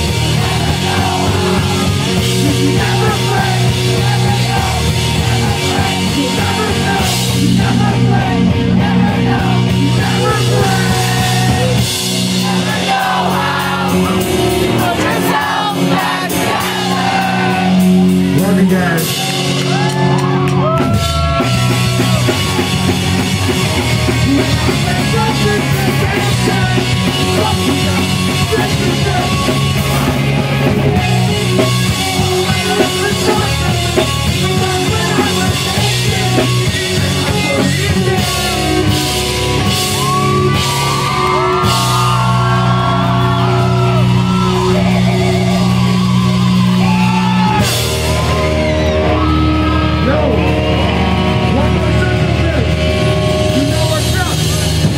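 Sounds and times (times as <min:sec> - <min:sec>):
voices shouting: 0:00.0 - 0:18.2, 0:37.2 - 0:51.7
live pop-punk band playing: 0:00.0 - 0:54.9
person singing: 0:00.2 - 0:17.9, 0:24.1 - 0:39.3.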